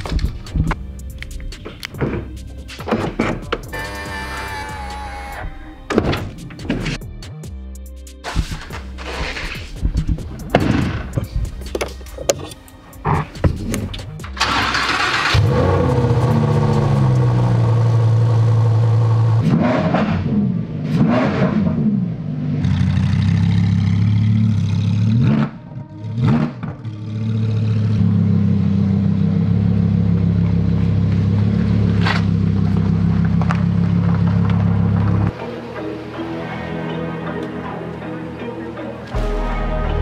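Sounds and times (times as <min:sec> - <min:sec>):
sports car engine idling and revving: 0:11.1 - 0:35.4.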